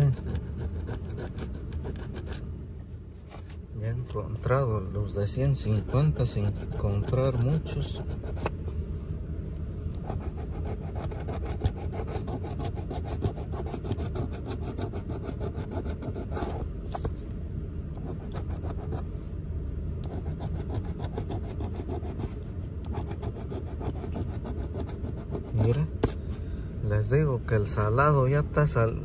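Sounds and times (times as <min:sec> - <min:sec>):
coin scratching ticket: 0:00.0 - 0:02.4, 0:05.7 - 0:08.5.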